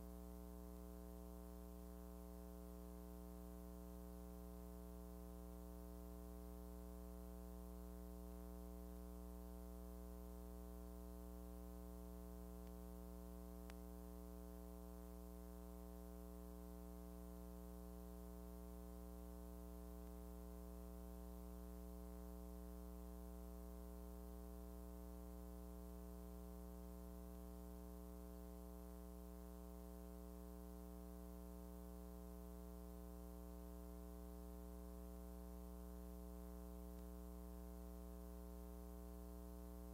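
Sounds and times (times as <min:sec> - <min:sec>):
faint mains hum: 0:00.0 - 0:39.9
faint click: 0:12.6 - 0:12.8, 0:13.6 - 0:13.9, 0:36.9 - 0:37.2.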